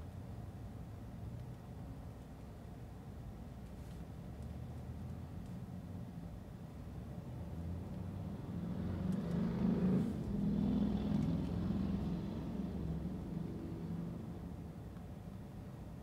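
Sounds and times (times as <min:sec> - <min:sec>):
vehicle driving past: 0:07.7 - 0:14.6.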